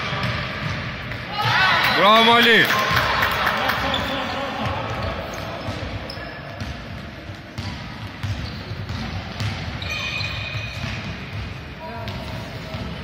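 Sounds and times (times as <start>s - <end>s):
shoe squeak: 5.0s - 6.8s, 7.6s - 11.1s
basketball bouncing on wooden floor: 6.6s - 13.0s.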